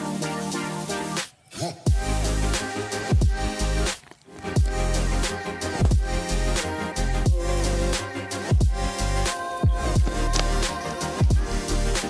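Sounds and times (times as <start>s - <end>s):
electronic beat with sliding bass: 1.9s - 3.9s, 4.5s - 12.0s.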